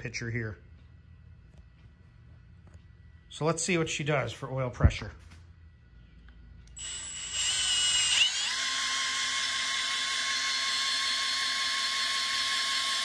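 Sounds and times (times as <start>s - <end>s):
power drill spinning: 6.7s - 13.0s.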